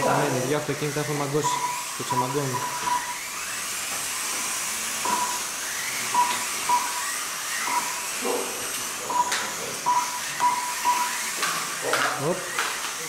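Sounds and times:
small electric motors whining: 0:00.0 - 0:13.0
short electronic beeps: 0:01.3 - 0:03.2, 0:05.1 - 0:05.5, 0:06.1 - 0:08.0, 0:09.1 - 0:11.3.

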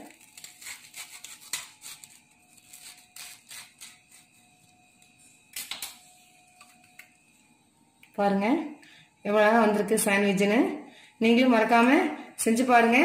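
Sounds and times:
knife crunching through toast: 0:00.0 - 0:04.4.

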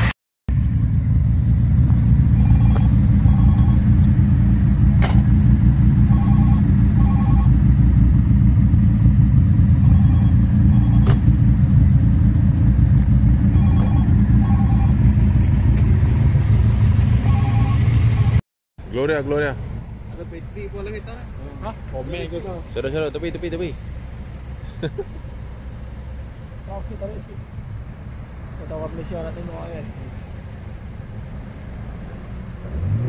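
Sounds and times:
car engine and road noise: 0:00.0 - 0:33.0.

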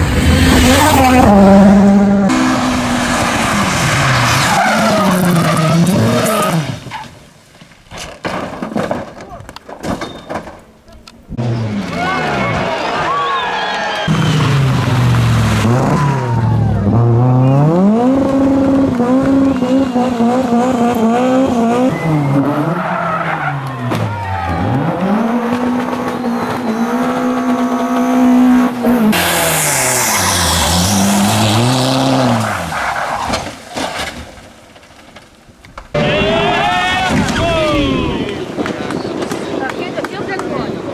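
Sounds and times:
rally car engines at full throttle: 0:00.0 - 0:06.9, 0:11.2 - 0:33.8.

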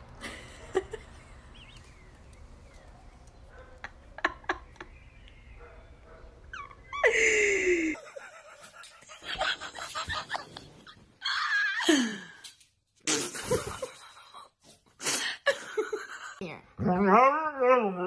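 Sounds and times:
person laughing breathily: 0:06.9 - 0:12.4.

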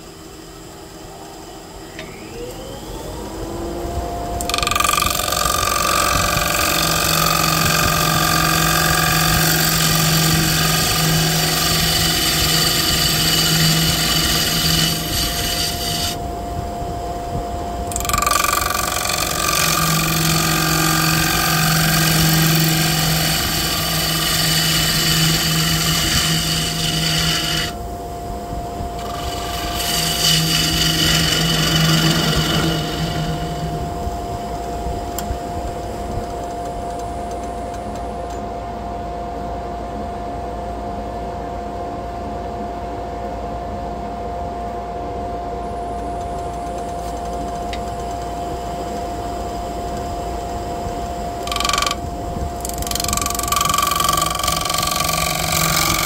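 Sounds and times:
wood lathe humming: 0:00.0 - 0:38.0, 0:46.4 - 0:56.0
gouge cutting wood: 0:04.5 - 0:16.2, 0:17.9 - 0:27.8, 0:29.0 - 0:33.9, 0:51.4 - 0:52.0, 0:52.6 - 0:56.0.

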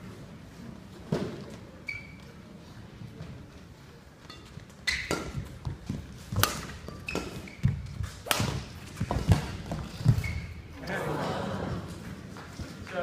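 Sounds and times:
shoes squeaking on court: 0:01.2 - 0:02.4, 0:04.2 - 0:10.8
racket hitting shuttlecock: 0:04.3 - 0:10.6.

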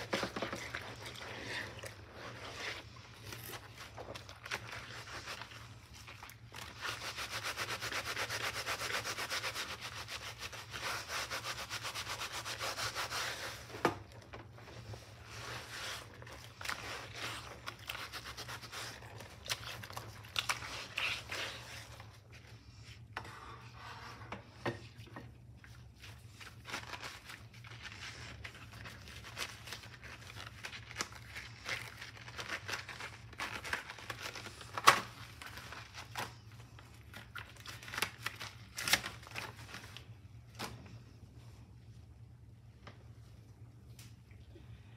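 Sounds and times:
cloth scrubbing cutting board: 0:00.0 - 0:13.8.

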